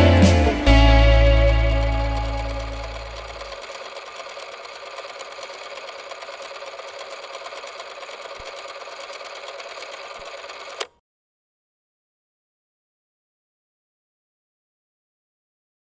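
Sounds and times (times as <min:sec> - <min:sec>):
film projector clattering: 0:01.2 - 0:11.0.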